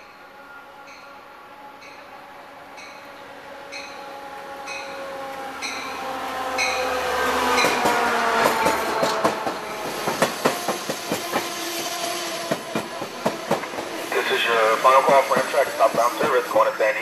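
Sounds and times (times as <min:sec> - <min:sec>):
diesel locomotive engine: 0:00.0 - 0:17.0
locomotive bell ringing: 0:05.6 - 0:06.0
train wheels clacking over rail joints: 0:07.4 - 0:14.0, 0:14.8 - 0:16.6.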